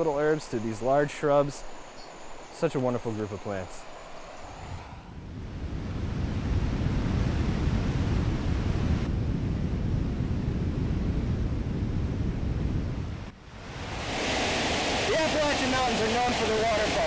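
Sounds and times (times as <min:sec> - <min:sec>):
waterfall rushing: 0:13.7 - 0:17.0.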